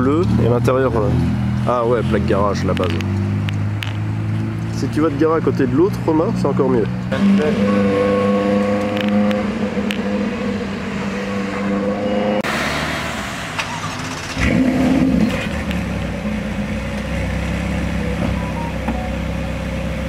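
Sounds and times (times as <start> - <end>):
car engine running at low speed: 14.0 - 20.0.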